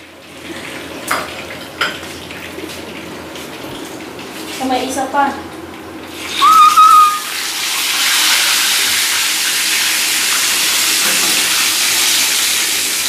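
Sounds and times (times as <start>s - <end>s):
fish frying in hot oil: 0.0s - 6.4s, 7.3s - 13.0s
high whistle-like tone: 6.4s - 7.4s.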